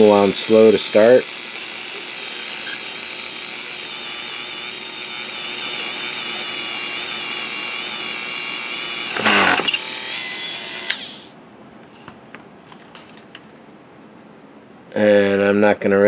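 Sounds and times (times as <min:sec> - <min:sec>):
rotary tool rasp: 0:00.0 - 0:11.3
rotary tool whining: 0:00.0 - 0:11.3.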